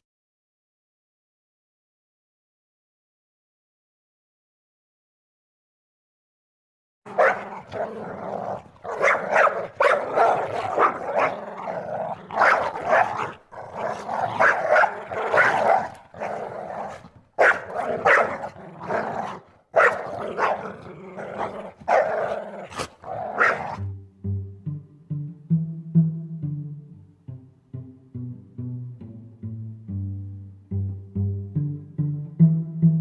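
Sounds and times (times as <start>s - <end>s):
prairie dogs growling and barking: 7.1s - 23.9s.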